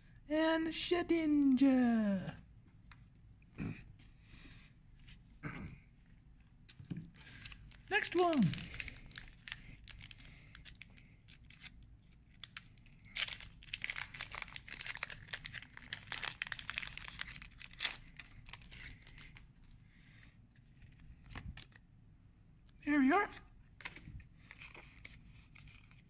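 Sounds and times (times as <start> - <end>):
foil wrapper crinkling and tearing: 7.2 - 19.5.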